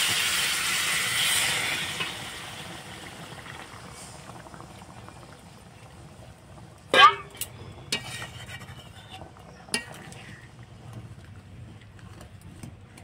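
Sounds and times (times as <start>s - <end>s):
water sizzling in hot pan: 0.0s - 10.0s.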